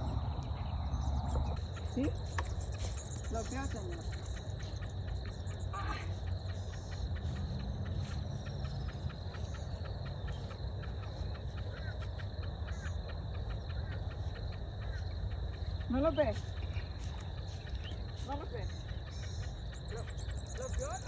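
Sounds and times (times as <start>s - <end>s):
low rumble: 0.0s - 3.4s
high hum: 0.0s - 4.0s
insects chirping: 0.0s - 21.0s.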